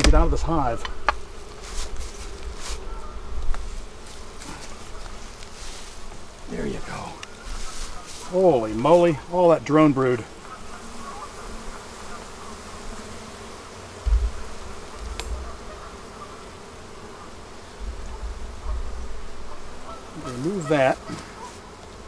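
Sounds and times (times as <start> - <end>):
low thumps: 0.0 - 1.3, 14.0 - 15.8, 17.7 - 19.9
bees buzzing: 0.0 - 22.0.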